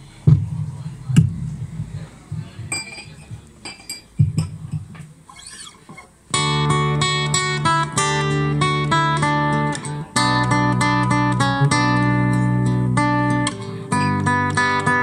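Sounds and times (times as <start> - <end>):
acoustic guitar plucks and knocks: 0.2 - 15.0
acoustic guitar strummed chords: 6.3 - 15.0.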